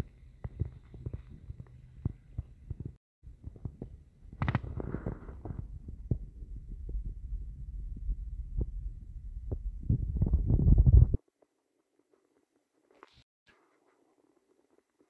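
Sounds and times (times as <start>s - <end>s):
low rumble: 0.0s - 11.2s.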